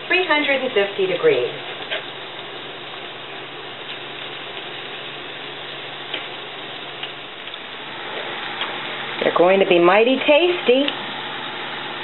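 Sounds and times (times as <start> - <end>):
oil sizzling and crackling in a pan: 0.0 - 12.0.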